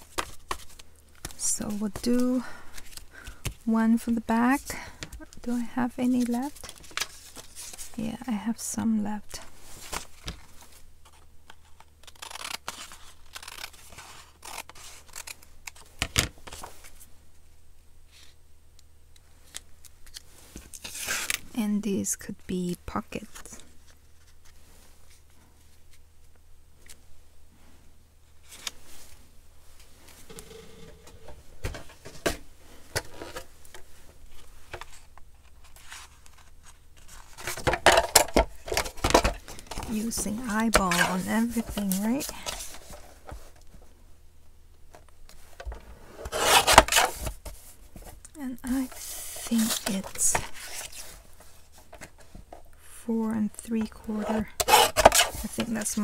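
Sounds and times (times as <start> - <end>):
scissors snipping paper: 12.0 - 15.4.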